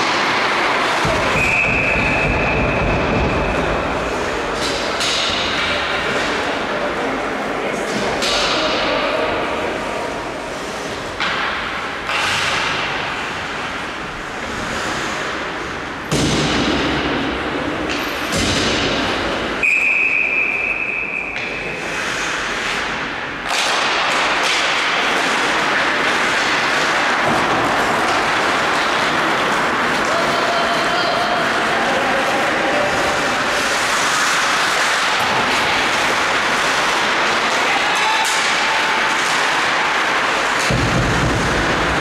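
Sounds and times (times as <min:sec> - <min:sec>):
puck and sticks thudding: 0:00.0 - 0:06.7, 0:07.7 - 0:09.7, 0:10.4 - 0:42.0
referee's whistle: 0:01.3 - 0:02.7, 0:19.6 - 0:21.4
rink noise: 0:17.9 - 0:42.0.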